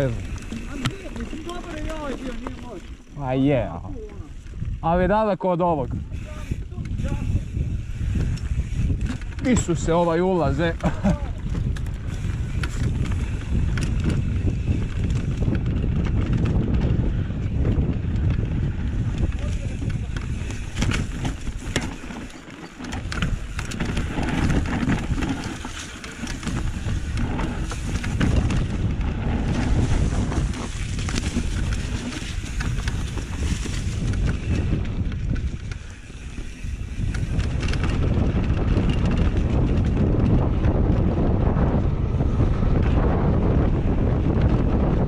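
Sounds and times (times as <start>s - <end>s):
bike rattles and clicks: 0.0s - 45.0s
tyres rumbling on dirt: 0.0s - 45.0s
wind buffeting microphone: 0.0s - 45.0s.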